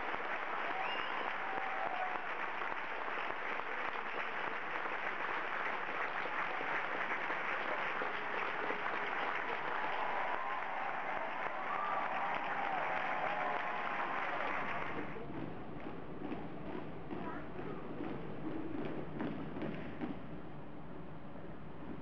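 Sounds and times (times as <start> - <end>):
arena audience applauding: 0.0 - 15.4.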